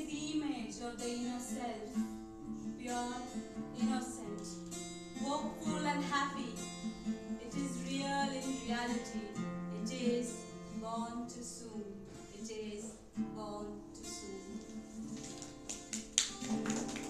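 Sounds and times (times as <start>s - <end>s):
woman singing: 0.0s - 4.6s, 5.2s - 6.7s, 7.3s - 14.7s
acoustic guitar strumming: 0.0s - 12.3s.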